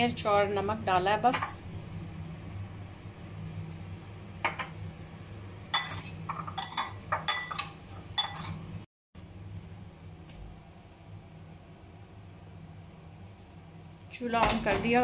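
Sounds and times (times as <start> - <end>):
metal spoon clinking ceramic bowl: 5.7 - 8.6.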